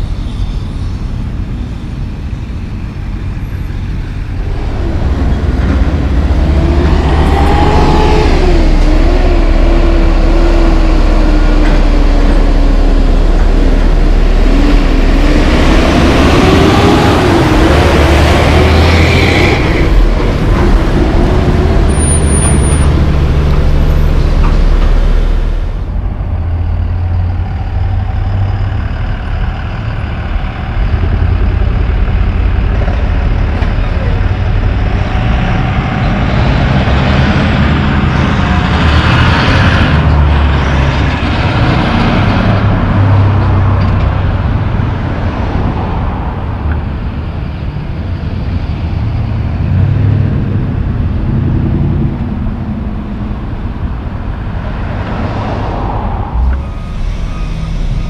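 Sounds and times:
traffic rumble: 0.0 - 58.0
truck diesel engine passing: 0.0 - 58.0.

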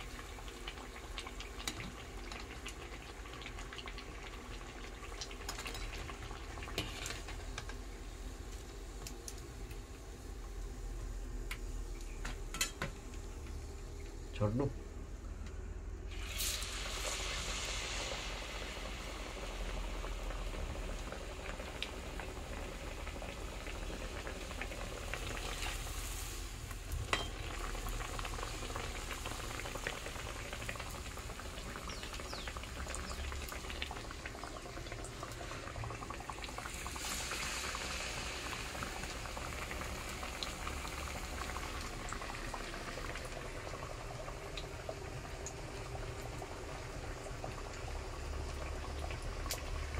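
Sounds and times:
batter sizzling in hot oil: 0.0 - 14.7, 16.0 - 49.9.

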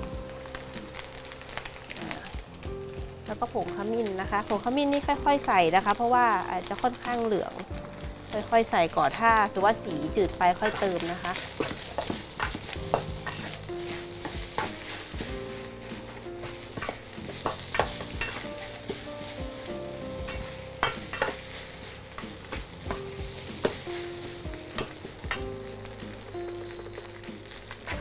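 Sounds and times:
oil sizzling: 0.0 - 28.0
metal spatula scraping wok: 9.8 - 25.5.

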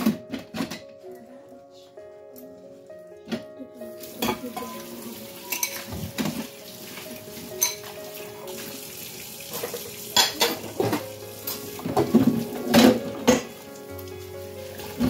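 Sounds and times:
kitchen tap running: 4.0 - 15.0
plates clinking: 4.2 - 6.5, 7.4 - 8.0, 9.5 - 13.5.

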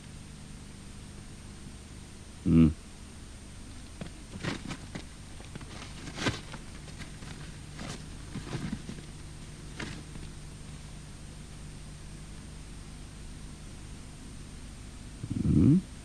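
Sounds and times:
steady low hum: 0.0 - 16.0
paper rustling and light taps: 3.9 - 10.4.

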